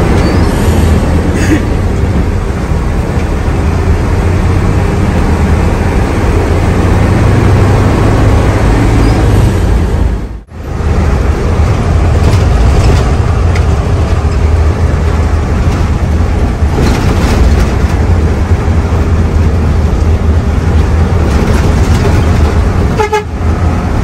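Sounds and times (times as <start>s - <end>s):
bus engine rumbling: 0.0s - 24.0s
road noise: 0.0s - 24.0s
horn blast: 23.0s - 23.4s.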